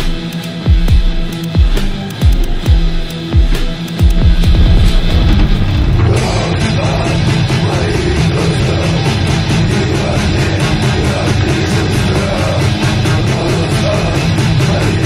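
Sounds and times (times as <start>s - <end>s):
rapid drumming: 0.0s - 7.7s
bass guitar: 0.0s - 15.0s
distorted electric guitar: 0.0s - 15.0s.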